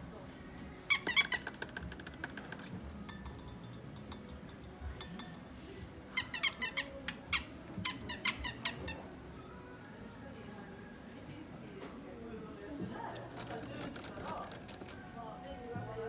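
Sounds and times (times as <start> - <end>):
squeaky dog toy squeaking: 0.9 - 1.8, 6.1 - 9.1.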